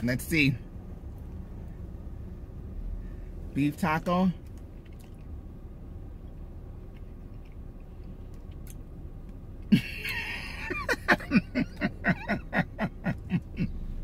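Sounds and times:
woman laughing loudly: 9.7s - 13.8s.

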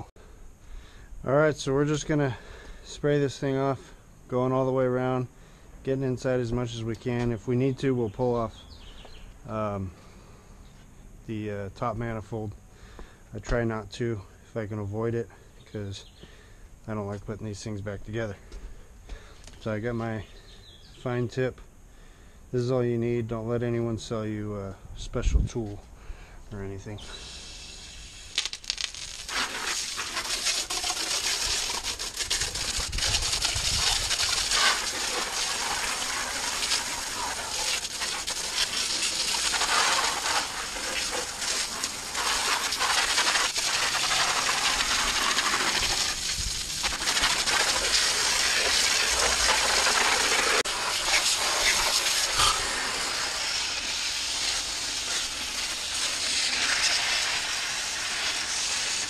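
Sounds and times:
hose spraying water jet: 26.9s - 59.0s
water spattering off grids: 28.3s - 59.0s.

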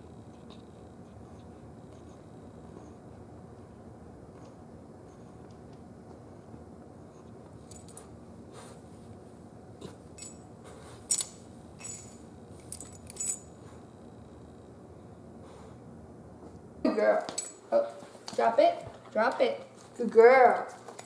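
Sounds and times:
collar tag jingling: 7.6s - 8.2s, 10.1s - 13.8s, 17.1s - 18.0s.

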